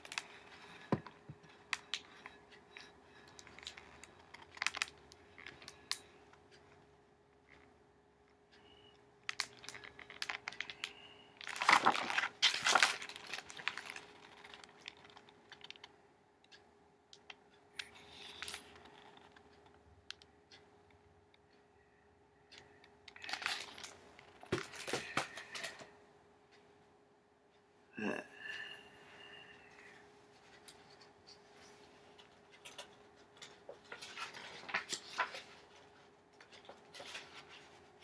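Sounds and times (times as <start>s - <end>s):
faint steady hum: 0.0s - 38.0s
book pages and cover rustling: 9.3s - 15.8s, 23.2s - 25.8s, 31.6s - 38.0s.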